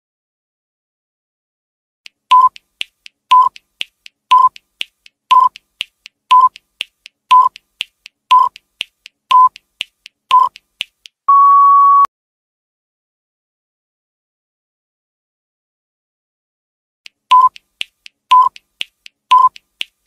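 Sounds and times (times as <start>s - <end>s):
light ticks: 2.1s - 11.2s, 17.1s - 20.0s
short timer beeps: 2.3s - 2.6s, 3.3s - 3.6s, 4.3s - 4.6s, 5.3s - 5.6s, 6.3s - 6.6s, 7.3s - 7.6s, 8.3s - 8.6s, 9.3s - 9.6s, 10.3s - 10.6s, 11.3s - 12.1s, 17.3s - 17.6s, 18.3s - 18.6s, 19.3s - 19.6s.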